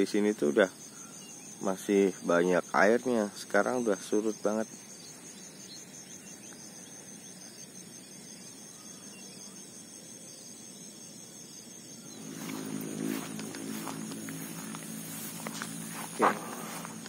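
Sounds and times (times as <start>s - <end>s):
insects trilling: 0.0s - 17.0s
low drone of steady tones: 12.1s - 17.0s.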